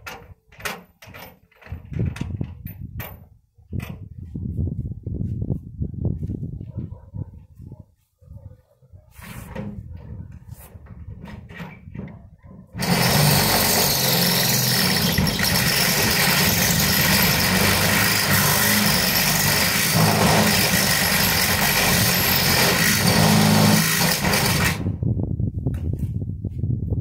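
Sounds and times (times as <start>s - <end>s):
power tool running: 12.8s - 24.9s.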